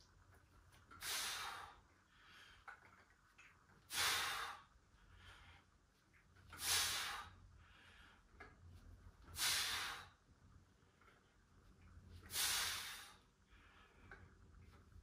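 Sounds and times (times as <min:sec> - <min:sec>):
quiet breathing: 0:00.8 - 0:03.2, 0:03.8 - 0:15.0
hard hissing exhalations: 0:01.0 - 0:01.8, 0:03.9 - 0:04.6, 0:06.6 - 0:07.4, 0:09.3 - 0:10.1, 0:12.3 - 0:13.2.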